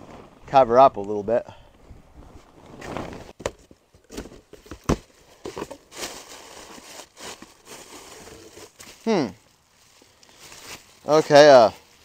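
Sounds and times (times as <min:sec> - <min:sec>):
cardboard rustling and tearing: 0:04.1 - 0:09.1.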